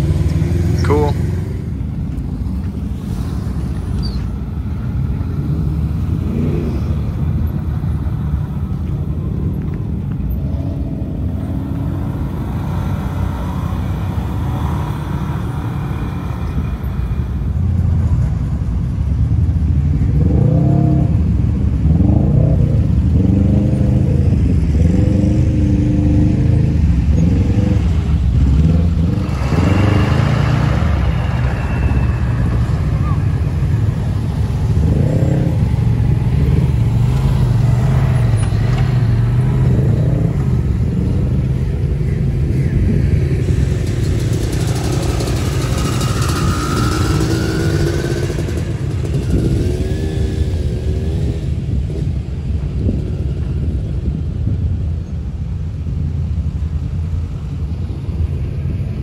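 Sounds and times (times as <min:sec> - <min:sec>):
truck engines rumbling: 0:00.0 - 0:59.0
engine revving: 0:21.8 - 0:42.0, 0:43.1 - 0:52.2.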